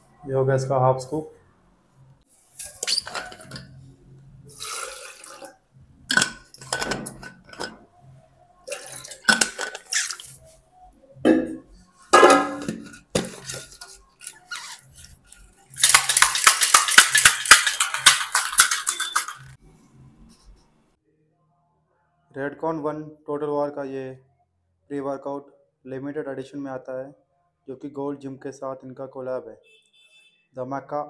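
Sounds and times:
clinks and splashes: 8.7s - 10.4s, 15.8s - 19.6s
shaker bottle shaking: 13.2s - 19.6s.

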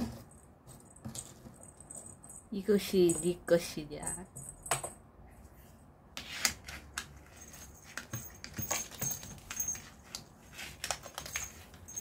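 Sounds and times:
high jingling: 7.4s - 10.1s, 11.1s - 12.0s.

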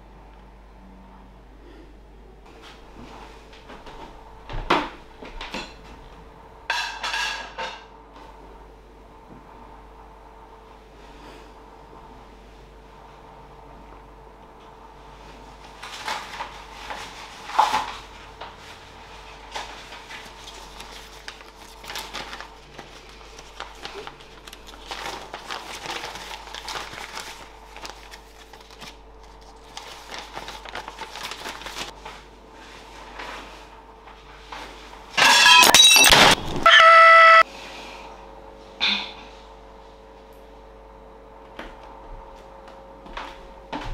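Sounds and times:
dishes and utensils clinking: 6.7s - 7.9s, 35.2s - 36.4s
paper rustling and crinkling: 15.6s - 33.7s.

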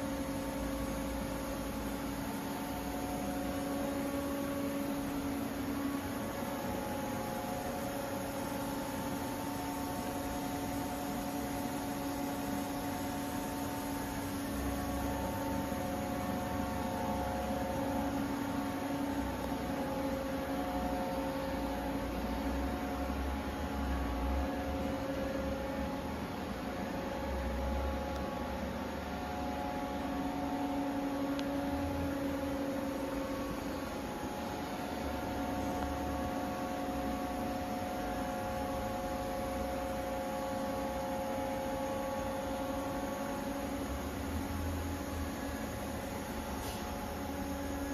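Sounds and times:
machine electrical hum: 0.0s - 47.9s.

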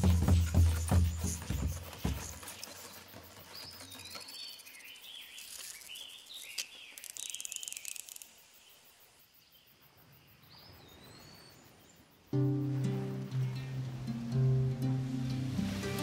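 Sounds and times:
faint birdsong whistles: 0.0s - 8.0s, 9.4s - 12.1s
insect chirring trill: 0.0s - 15.2s.

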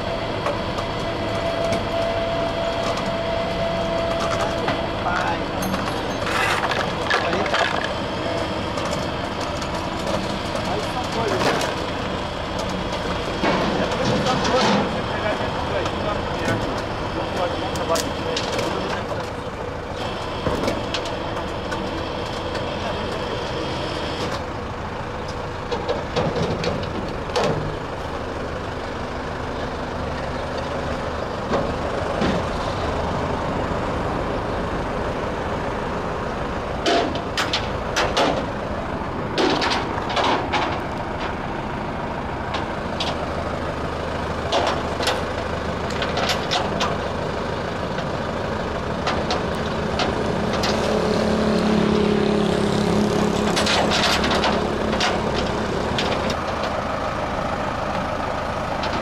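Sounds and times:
truck engine running: 0.0s - 59.0s.

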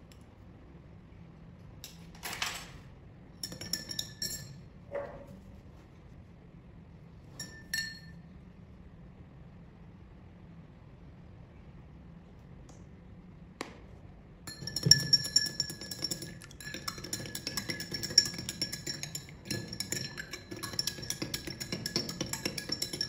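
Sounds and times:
spoon clinking in glass: 3.4s - 4.7s, 7.4s - 8.2s, 14.5s - 23.0s.

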